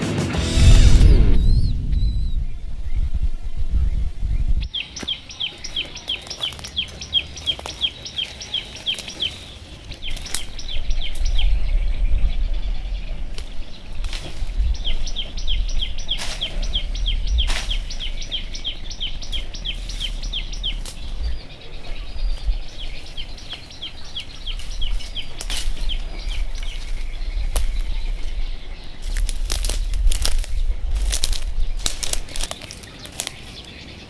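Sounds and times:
low rumble: 0.3 - 4.7, 9.8 - 32.6
bird chirping: 0.6 - 34.0
leaves rustling: 0.6 - 34.0
twigs snapping: 4.9 - 11.6, 13.3 - 33.8.

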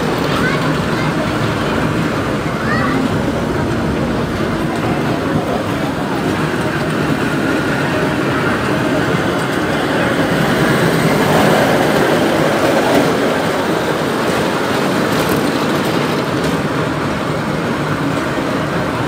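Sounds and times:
small train ride running on track: 0.0 - 19.0.

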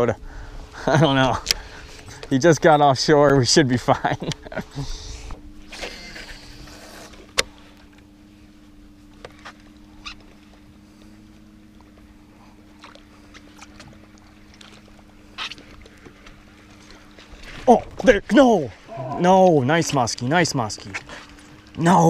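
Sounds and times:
electric motor humming: 4.4 - 17.4.

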